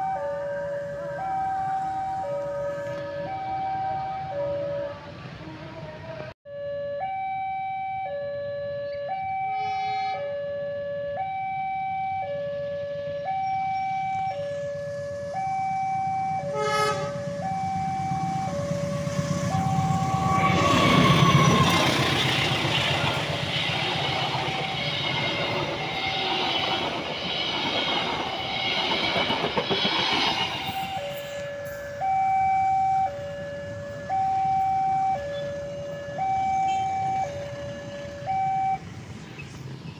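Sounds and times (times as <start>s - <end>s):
level crossing two-tone alarm: 0.0s - 5.0s, 6.5s - 26.8s, 30.5s - 38.8s
train engine passing: 0.0s - 6.3s, 12.5s - 39.9s
train wheels on rails: 16.1s - 34.6s.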